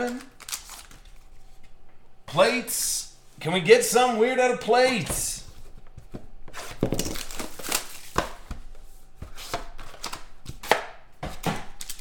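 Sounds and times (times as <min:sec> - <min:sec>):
card packs rustling: 0:00.0 - 0:01.8, 0:04.7 - 0:10.6, 0:11.3 - 0:12.0.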